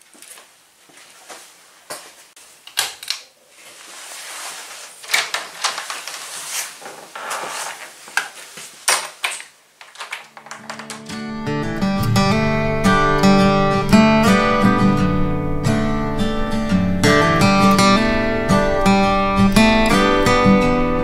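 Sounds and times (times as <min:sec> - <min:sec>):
rustling and clattering: 0:02.7 - 0:11.3
sharp knocks and clicks: 0:08.9 - 0:11.2.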